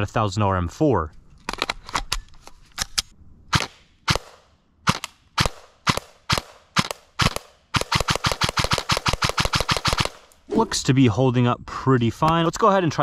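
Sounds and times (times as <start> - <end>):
airsoft rifle firing: 3.5 - 10.3.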